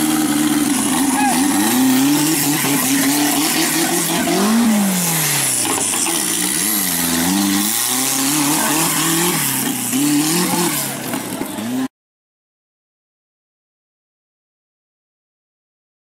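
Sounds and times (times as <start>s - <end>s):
buggy engine revving: 0.0s - 11.9s.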